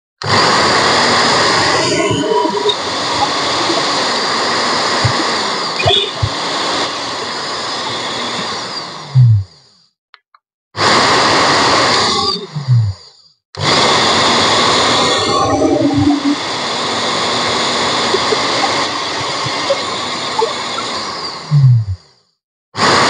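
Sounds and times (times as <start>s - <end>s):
blender motor running: 0.2s - 9.2s, 13.6s - 21.6s.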